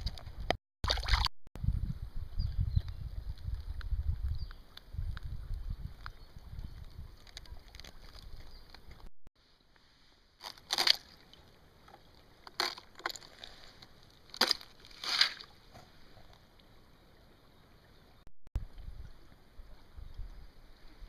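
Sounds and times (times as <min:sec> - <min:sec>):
faint steady hiss: 0:09.4 - 0:10.4
ice crunching and snapping: 0:10.4 - 0:11.2, 0:12.4 - 0:15.6.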